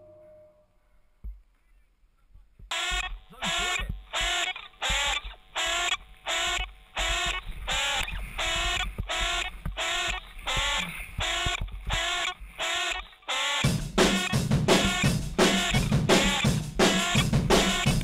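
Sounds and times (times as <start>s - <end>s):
repeated pitched stabs: 2.6s - 18.0s
drum kit: 13.6s - 18.0s.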